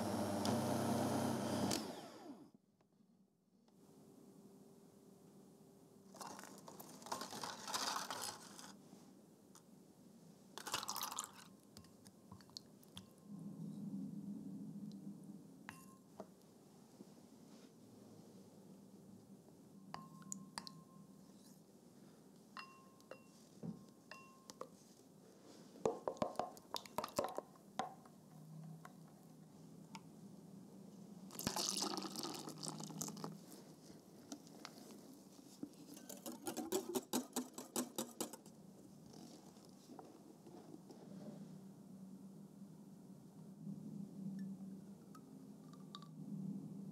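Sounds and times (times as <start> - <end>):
gelatine sheets crinkling: 6.2 - 8.7
spoon stirring in glass bowl: 20.0 - 21.6, 35.7 - 38.5
utensils clinking on glass bowls: 35.9 - 38.4.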